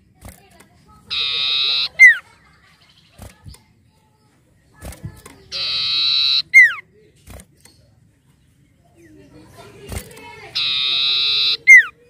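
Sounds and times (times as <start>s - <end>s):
bird harsh buzzing call: 1.1s - 2.2s, 5.5s - 6.8s, 10.5s - 11.9s.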